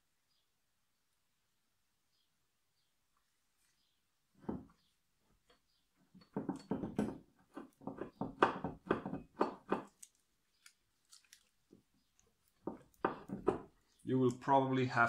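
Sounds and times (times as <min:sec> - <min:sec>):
crunching rubbing handling noise: 0:03.6 - 0:14.4.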